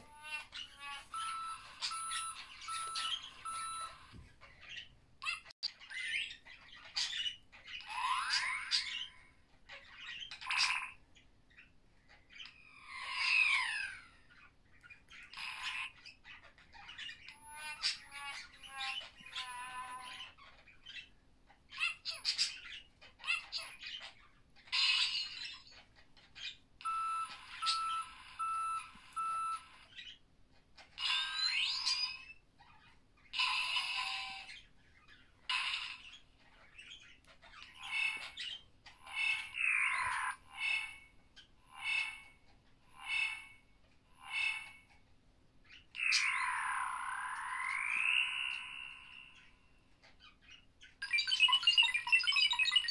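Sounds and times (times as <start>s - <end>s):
electronic robot chirps and warbles: 0.0s - 4.2s, 26.8s - 29.8s, 37.6s - 44.9s, 45.9s - 49.7s, 51.0s - 52.9s.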